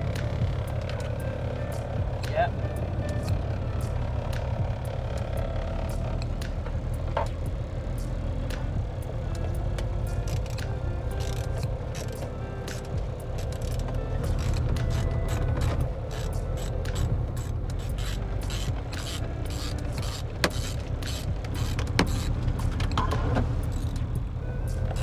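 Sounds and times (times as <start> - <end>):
steady low rumble: 0.0 - 25.0
socket ratchet clicking: 10.2 - 23.1.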